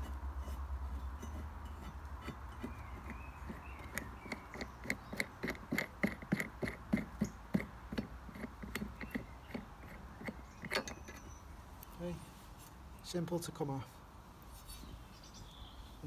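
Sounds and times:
light metallic clicks of nut turning: 3.8s - 12.0s.

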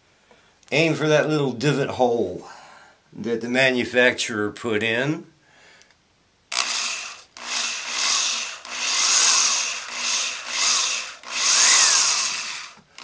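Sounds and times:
power drill boring through metal: 6.5s - 13.0s.

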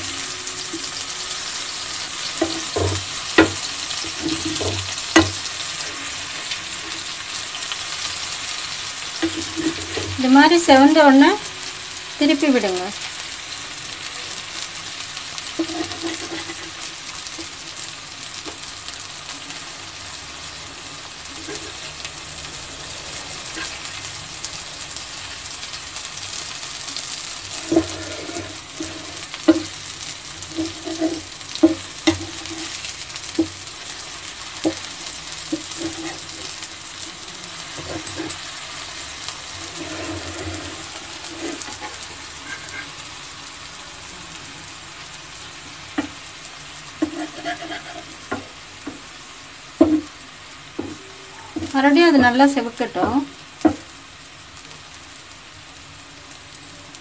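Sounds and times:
banana slices sizzling in oil: 0.0s - 57.0s
spatula knocking and scraping pan: 2.2s - 5.6s, 9.2s - 10.2s, 15.5s - 17.6s, 21.4s - 21.9s, 27.5s - 33.6s, 34.5s - 34.9s, 35.5s - 36.6s, 37.8s - 38.4s, 39.6s - 43.0s, 45.9s - 46.2s, 47.0s - 49.1s, 49.8s - 50.1s, 50.8s - 51.0s.

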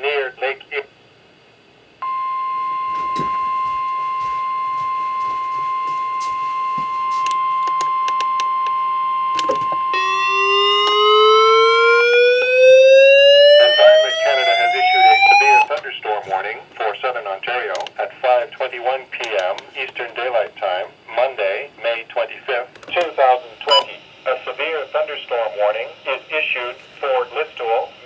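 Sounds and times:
radio voice speaking: 0.0s - 0.9s, 13.5s - 28.0s
siren-like rising alarm tone: 9.3s - 15.7s
weather radio alert tone: 9.4s - 15.8s.

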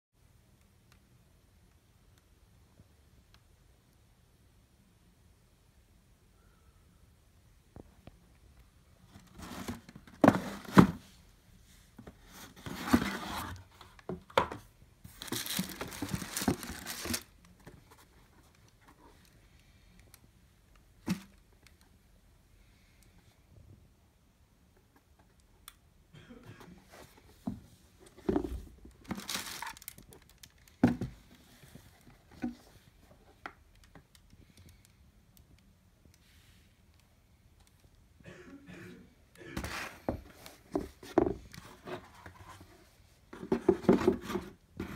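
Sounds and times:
plastic wrapping crinkling: 15.1s - 17.4s, 28.9s - 30.8s.

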